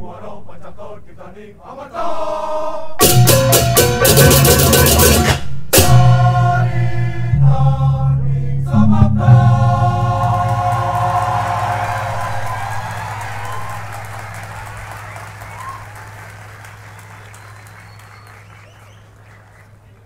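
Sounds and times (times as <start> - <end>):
cymbal clashes: 3.0 - 6.2
drums: 3.0 - 7.2.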